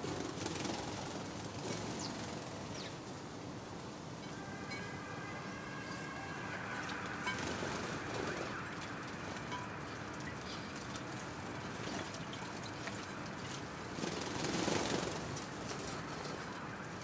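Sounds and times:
sparrows fluttering and splashing: 0.0 - 3.1, 6.3 - 17.0
faint siren wailing: 4.1 - 11.6.

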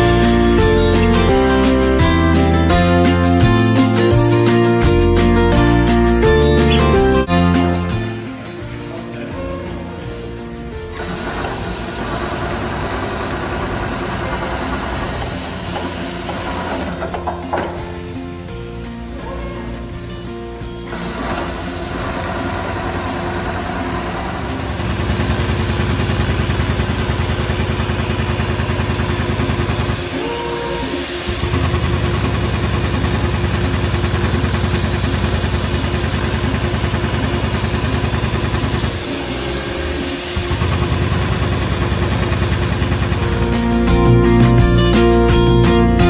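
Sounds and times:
perforating machine punching holes: 10.9 - 18.1, 20.9 - 43.8.

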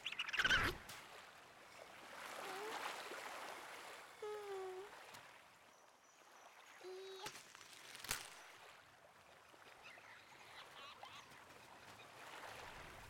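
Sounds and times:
faint lapping water: 0.0 - 13.0
rustle of leaves: 6.8 - 8.8.

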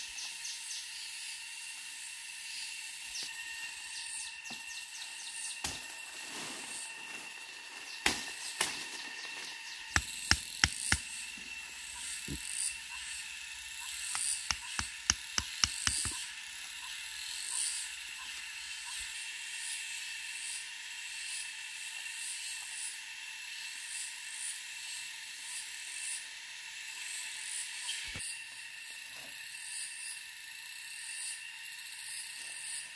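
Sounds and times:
insects chorus: 0.0 - 32.9
wooden sticks snapping: 10.0 - 11.1, 14.2 - 16.2.

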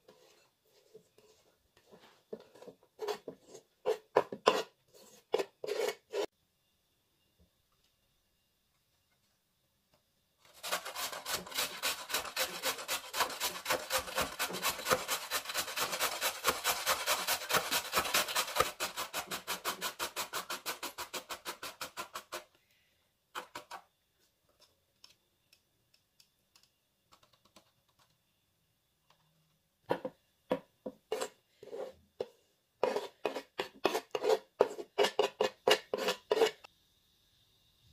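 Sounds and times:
carrot grating on metal grater: 2.6 - 6.3, 10.5 - 22.5, 31.1 - 31.9, 32.8 - 36.7.

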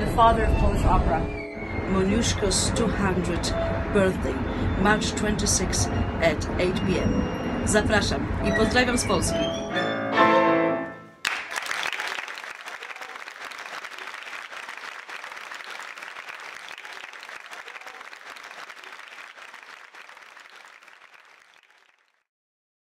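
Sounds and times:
audience applauding: 11.2 - 22.2.

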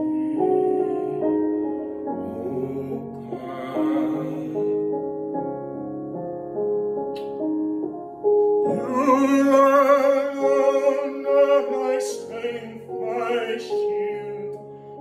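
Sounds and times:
piano accompaniment: 0.0 - 15.0
man singing with vibrato: 2.2 - 4.8, 8.7 - 14.6.

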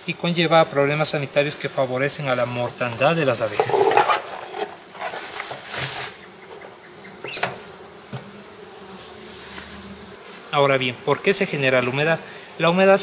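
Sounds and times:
bees buzzing: 0.0 - 13.0
metal lid scraping and knocking: 3.5 - 5.6.

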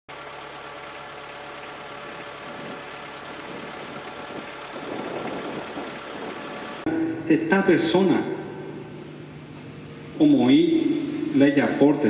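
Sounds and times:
engine idling: 0.1 - 12.0.

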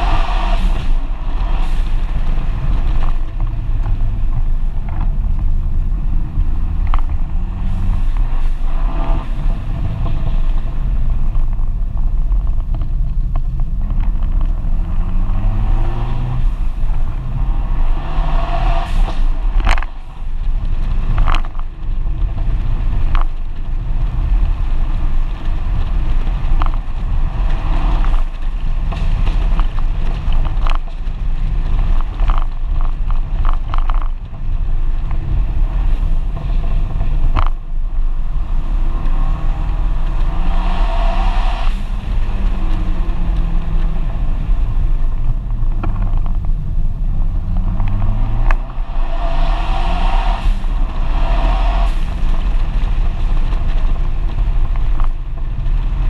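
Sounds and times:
car engine accelerating: 0.0 - 56.0
wind and road noise: 0.0 - 56.0.

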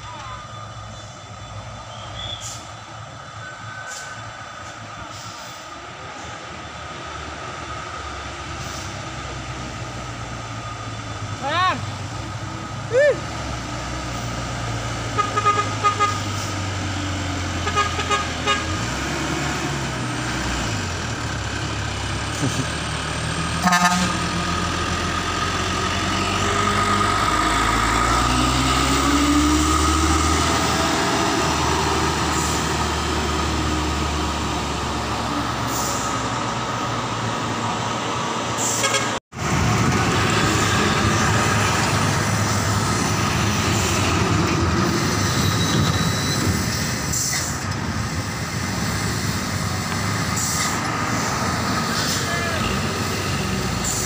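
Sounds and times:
diesel truck engines under load: 0.0 - 54.0
short horn toots: 23.6 - 24.2, 38.6 - 39.2.

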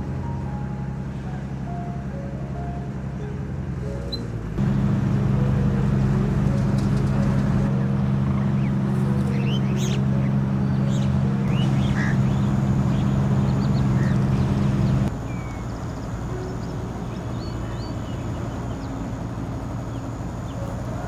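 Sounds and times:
steady low motor hum: 0.0 - 21.0
bird chirps and calls: 7.3 - 19.0.

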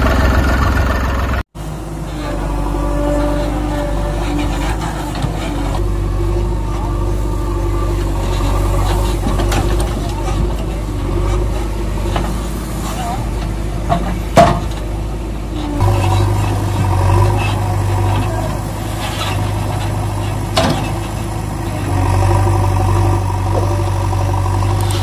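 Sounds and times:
heavy vehicle engine running: 0.0 - 25.0.

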